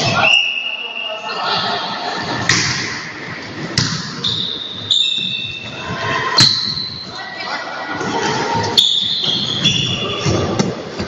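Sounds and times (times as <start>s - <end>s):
volleyball hand slaps: 2.5s - 2.9s, 3.8s - 4.1s
shoe squeaks: 4.2s - 5.8s, 8.8s - 10.6s.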